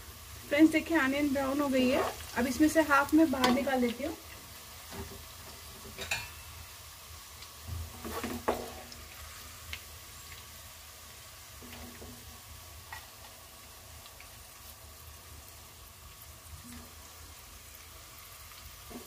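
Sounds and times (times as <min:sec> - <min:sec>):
onions sizzling in hot oil: 0:00.0 - 0:19.0
wooden spatula scraping: 0:07.9 - 0:08.9.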